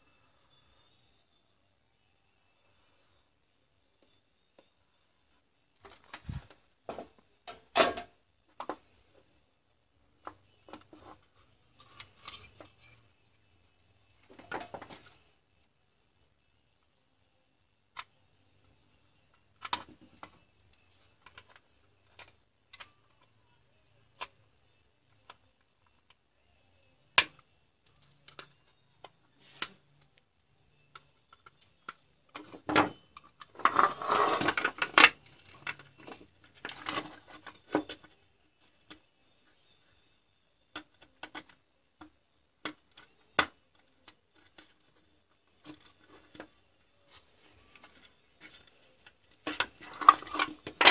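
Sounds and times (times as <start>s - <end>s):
plastic handling noise: 5.7s - 9.1s, 27.2s - 39.8s, 40.8s - 50.9s.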